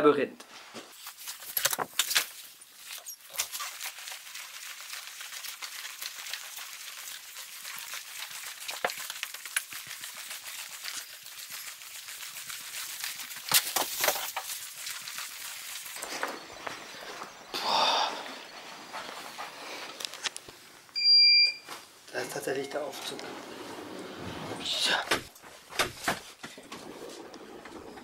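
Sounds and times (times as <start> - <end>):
footsteps on carpet: 16.0 - 17.3, 18.6 - 20.2.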